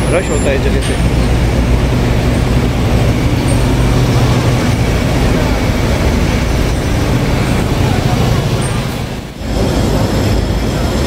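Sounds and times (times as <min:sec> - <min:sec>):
large vehicle engine hum: 0:00.0 - 0:11.0
street traffic noise: 0:00.0 - 0:11.0.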